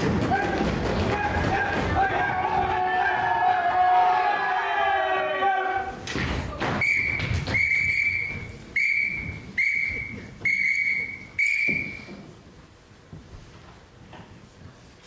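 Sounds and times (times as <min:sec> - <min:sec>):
whistle blasts: 0:06.8 - 0:12.2.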